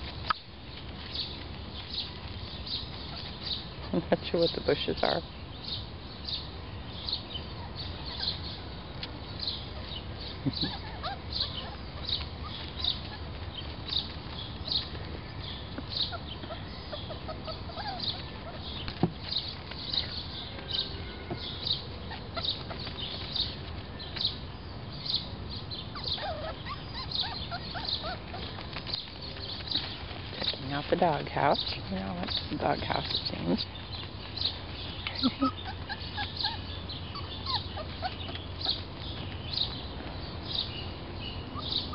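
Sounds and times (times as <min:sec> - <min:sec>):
bird short high call: 0:19.9 - 0:21.8.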